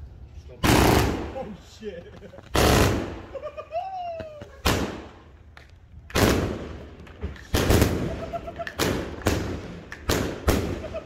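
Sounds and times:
firework shots: 0.6 - 1.6, 2.5 - 3.4, 4.5 - 5.4, 6.0 - 11.0.

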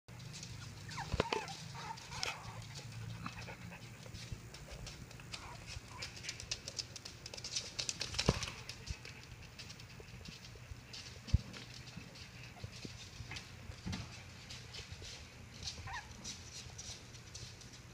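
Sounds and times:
puppy squeaks: 0.6 - 2.0, 15.6 - 16.3.

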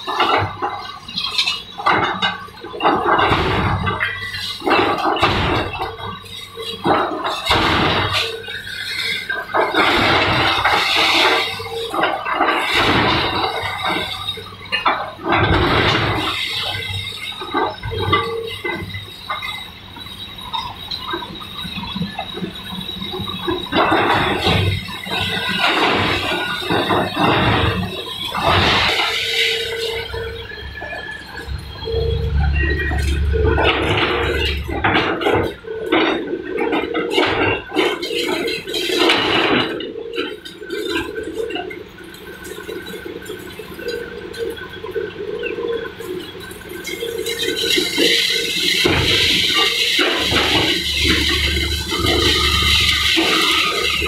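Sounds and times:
concrete breaking and crunching: 0.0 - 19.6, 23.2 - 31.5, 32.4 - 41.7, 45.2 - 54.0
debris knocks: 0.0 - 19.6, 23.2 - 31.6, 32.4 - 41.7, 46.8 - 54.0
excavator engine hum: 0.0 - 54.0
rubble crashing down: 1.8 - 19.6, 23.2 - 31.1, 32.5 - 41.4, 47.0 - 54.0
thin high whine: 45.7 - 54.0.

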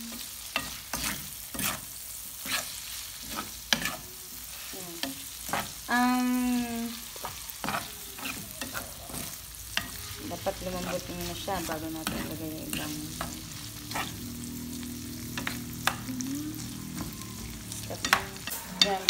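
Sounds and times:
meat sizzling in a frying pan: 0.0 - 19.0
spoon scraping and knocking a pan: 0.6 - 4.0, 10.6 - 14.3.

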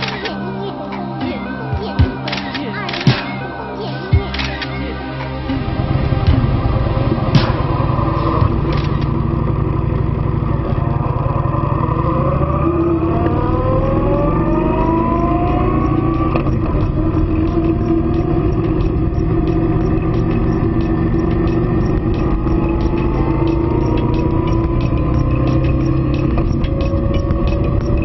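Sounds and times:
wind and road noise: 5.1 - 28.0
motorcycle engine accelerating: 5.5 - 28.0
faint regular ticking: 12.7 - 28.0.

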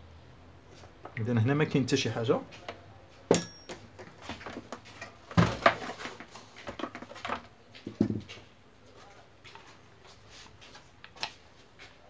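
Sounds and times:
mixer housing knocking and clattering: 3.3 - 8.4.

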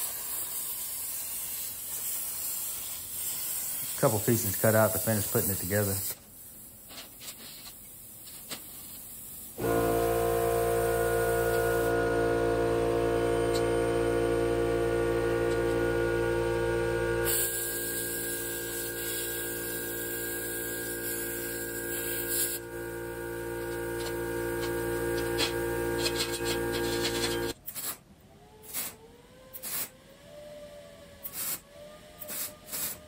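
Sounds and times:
plasma cutter hissing and crackling: 0.0 - 9.5, 17.3 - 22.6
steady hum: 9.6 - 27.6.

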